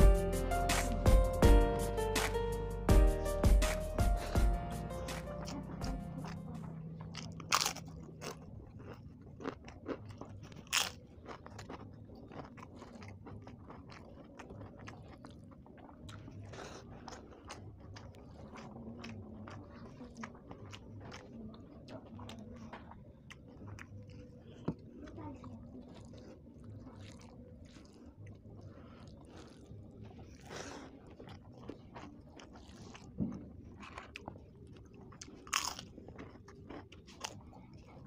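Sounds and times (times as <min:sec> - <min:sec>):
chewing with small crackles: 0:05.4 - 0:38.0
crunching bites of crisp food: 0:07.0 - 0:24.7, 0:25.4 - 0:38.0.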